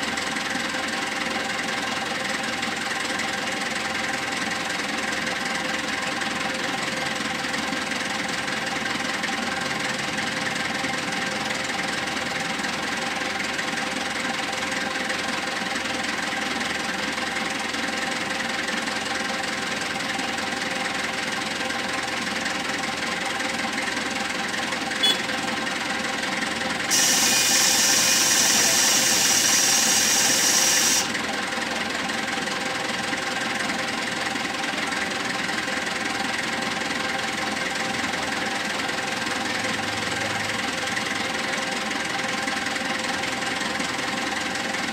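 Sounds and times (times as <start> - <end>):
diesel engine running: 0.0 - 44.9
loud hiss: 26.9 - 31.1.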